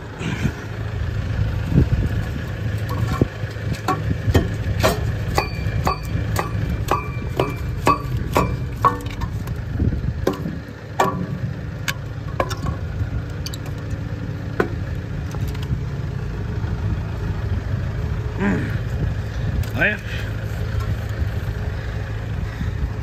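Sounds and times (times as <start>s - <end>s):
tractor engine idling: 0.0s - 23.0s
metal striking metal clangs: 2.9s - 9.5s, 10.2s - 12.8s.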